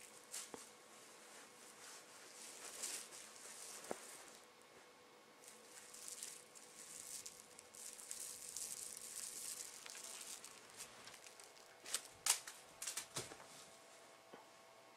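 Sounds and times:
crinkly toy rustling: 1.3s - 4.6s, 5.4s - 13.5s
sharp crackles: 5.4s - 13.1s.

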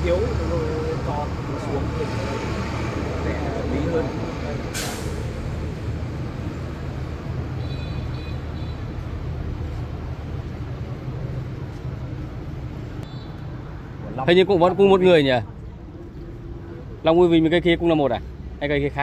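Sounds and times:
short hiss: 4.7s - 5.4s.

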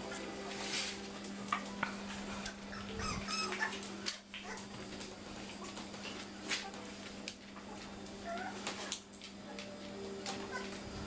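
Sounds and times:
puppies whimpering and yipping: 2.4s - 4.8s, 8.2s - 9.0s, 10.3s - 10.8s.

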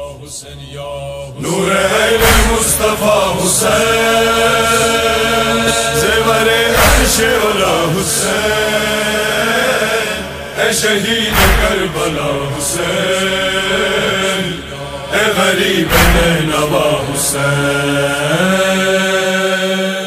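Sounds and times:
male chorus chanting: 0.0s - 20.0s
deep booming hit: 2.2s - 2.9s, 6.7s - 7.5s, 11.1s - 13.5s, 15.8s - 16.7s.

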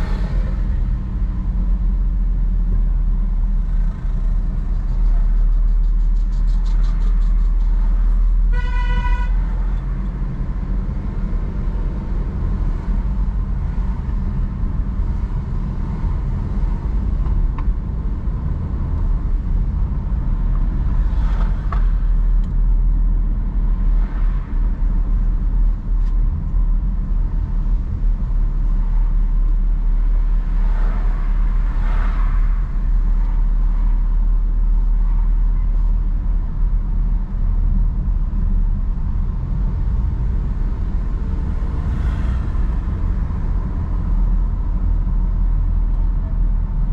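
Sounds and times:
car driving road and engine noise: 0.0s - 46.9s
vehicle horn toot: 8.5s - 9.5s.

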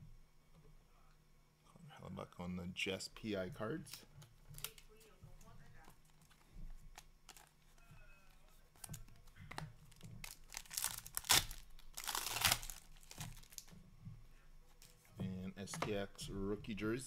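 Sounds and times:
foil pack crinkling and tearing: 6.1s - 7.5s, 9.9s - 13.7s.

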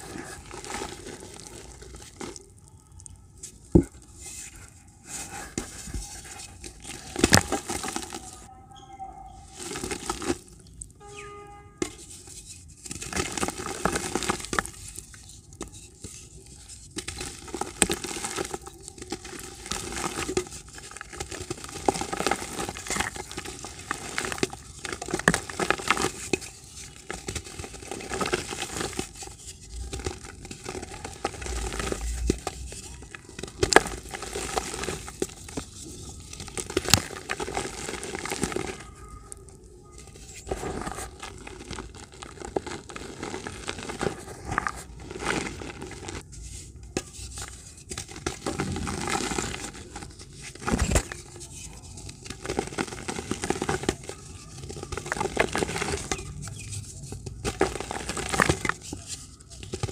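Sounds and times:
crumbs falling into water: 0.0s - 4.3s, 6.6s - 8.5s, 12.9s - 59.9s
dirt blocks crunching by hand: 5.1s - 8.4s, 16.6s - 38.8s, 40.1s - 59.9s.

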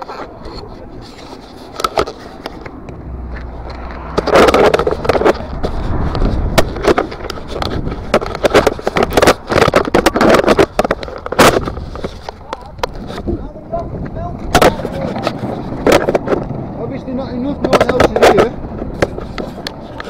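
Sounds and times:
low rumble: 2.7s - 8.3s.

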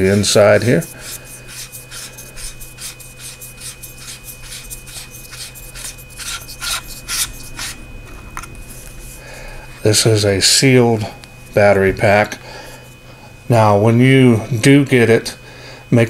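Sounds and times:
flashlight body unscrewing rasp: 1.0s - 7.8s.

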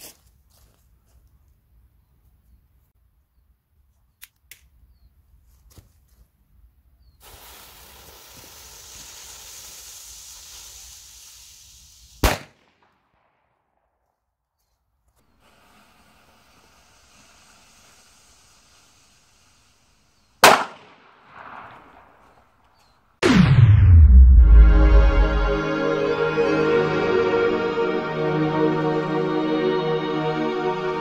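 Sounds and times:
firecracker fuse hissing: 7.2s - 12.6s, 15.2s - 22.4s
firecracker bang: 20.4s - 22.1s, 23.2s - 25.8s.

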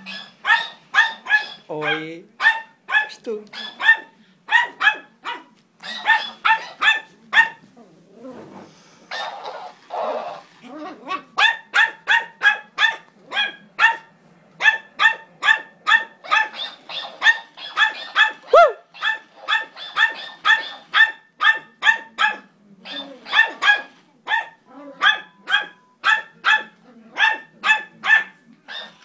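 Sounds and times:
dog cry: 0.0s - 7.6s, 14.6s - 29.0s
small dog barking: 0.0s - 7.6s, 10.9s - 29.0s.

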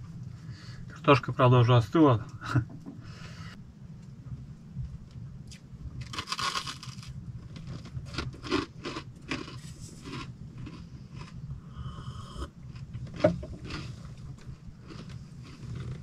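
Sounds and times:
steady low hum: 0.0s - 16.0s
rustling and crunching: 12.7s - 16.0s.

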